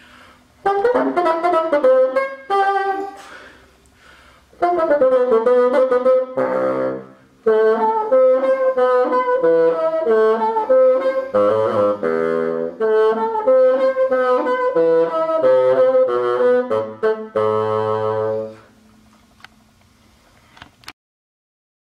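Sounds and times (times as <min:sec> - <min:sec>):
bassoon playing melodic phrase: 0:00.6 - 0:03.6, 0:04.6 - 0:18.7.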